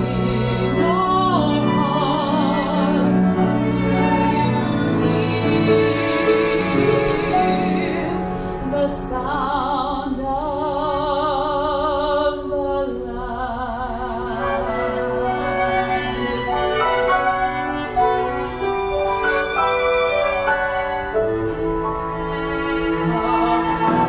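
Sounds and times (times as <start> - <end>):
woman singing with vibrato: 0.0 - 16.1
chamber ensemble playing: 14.2 - 24.0.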